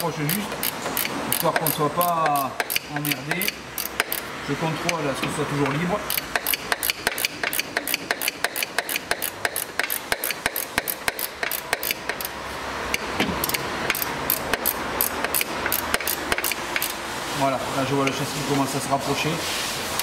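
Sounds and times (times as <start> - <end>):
ratchet wrench clicking: 0.0 - 5.0, 5.6 - 17.0.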